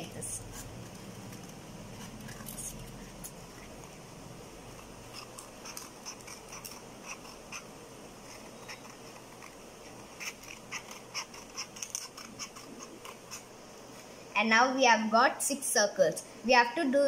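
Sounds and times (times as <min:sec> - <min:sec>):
scissors cutting paper: 0:00.0 - 0:04.0, 0:04.7 - 0:13.5.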